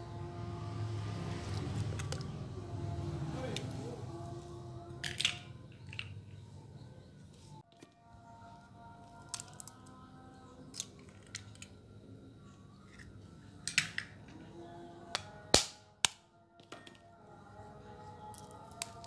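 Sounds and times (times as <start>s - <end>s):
faint background music: 0.0s - 19.0s
eggs cracking on bowl rim: 5.0s - 6.2s, 9.3s - 10.0s, 18.3s - 19.0s.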